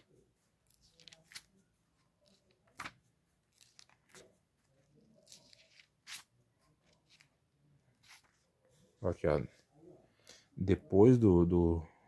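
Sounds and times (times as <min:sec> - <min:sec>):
pages being turned: 0:00.6 - 0:07.3, 0:08.0 - 0:08.5.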